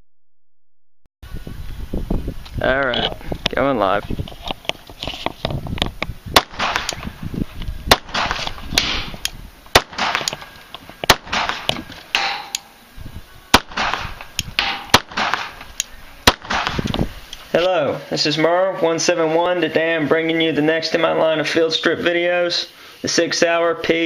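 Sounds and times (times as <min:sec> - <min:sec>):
pistol shots with echo: 0:06.4 - 0:07.0, 0:07.9 - 0:10.5, 0:11.1 - 0:12.6, 0:13.5 - 0:16.9.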